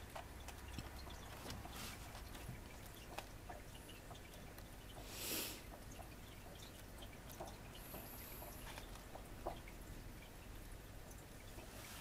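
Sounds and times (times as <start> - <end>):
book pages flipping: 0.5 - 3.3.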